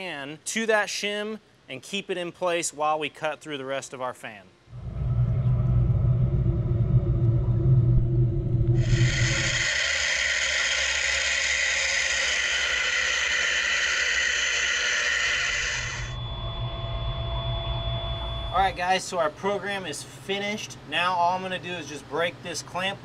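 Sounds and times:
low machine rumble: 4.7 - 19.4
steady cutting hiss: 8.8 - 16.2.

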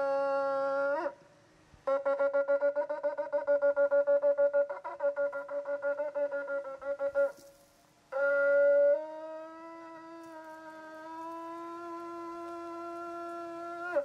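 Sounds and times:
shofar blasts: 5.2 - 14.0.

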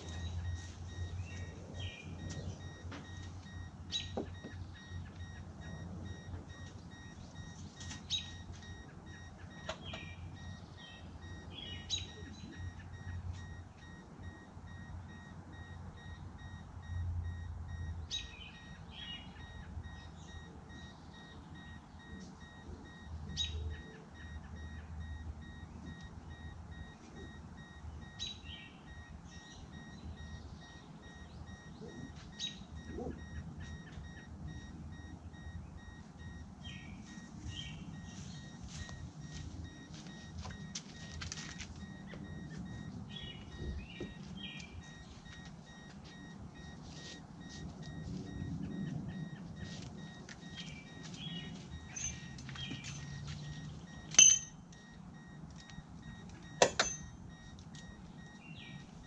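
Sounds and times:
bird chirps: 0.0 - 14.4, 17.8 - 26.5, 27.2 - 34.2, 35.4 - 40.7, 41.9 - 45.1, 50.4 - 54.5, 57.8 - 58.9
car door warning chime beeping: 0.0 - 59.0.

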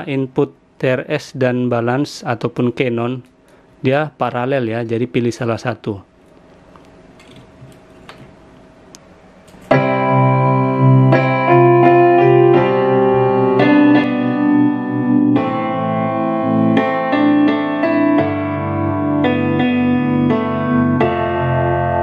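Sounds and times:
piano music through speaker: 9.7 - 22.0.

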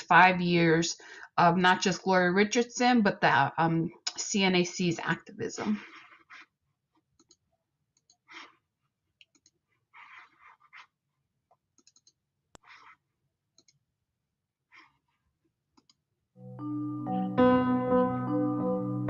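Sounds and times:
mouse and keyboard clicks: 7.2 - 7.4, 9.2 - 10.8, 11.8 - 13.0, 13.6 - 13.8
soft rustles: 9.6 - 11.2.

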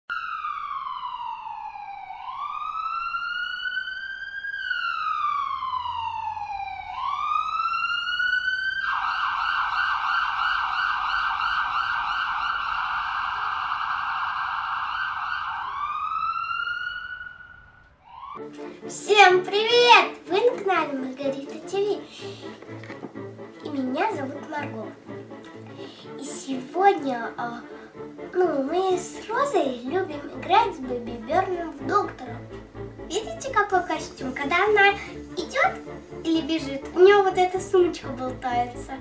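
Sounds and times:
electronic siren wailing and yelping: 0.1 - 18.4.

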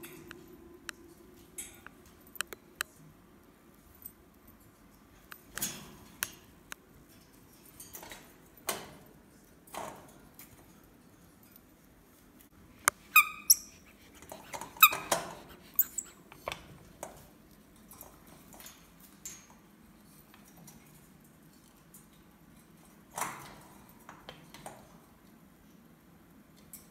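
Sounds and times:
monkey squeaky calls: 13.0 - 13.9.

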